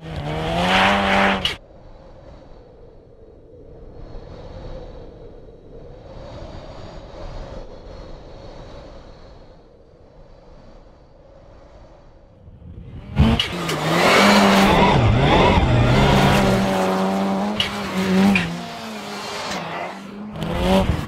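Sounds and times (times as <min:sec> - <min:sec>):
racing car engine at high revs: 0:00.0 - 0:01.6, 0:12.5 - 0:21.0.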